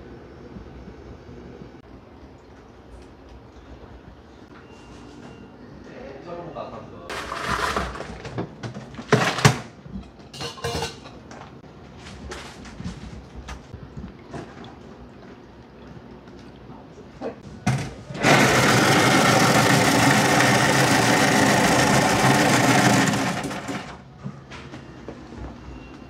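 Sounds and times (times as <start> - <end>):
ice shaving machine motor humming: 18.2 - 24.0.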